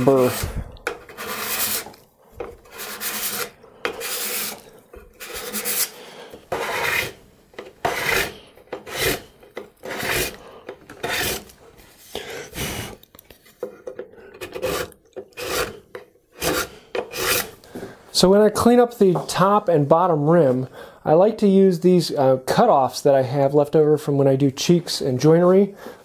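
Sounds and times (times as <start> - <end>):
steel scraper rasping on wood: 0.0 - 10.4, 11.0 - 11.5, 14.4 - 17.5.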